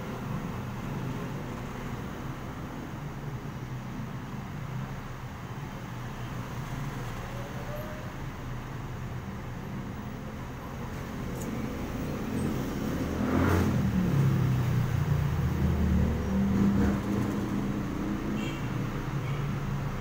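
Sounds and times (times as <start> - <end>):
street traffic: 0.0 - 20.0
motorcycle engines passing: 10.7 - 20.0.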